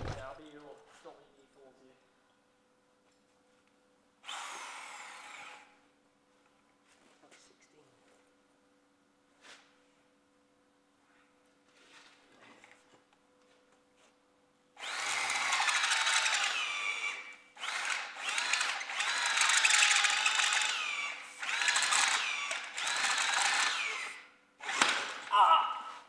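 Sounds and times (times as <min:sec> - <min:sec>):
electric drill boring through metal: 0:04.3 - 0:05.7, 0:14.8 - 0:25.2.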